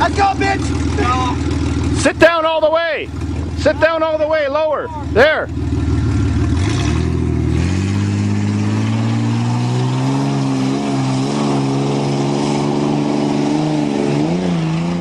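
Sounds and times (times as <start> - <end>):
pickup truck engine revving hard: 5.8 - 15.0.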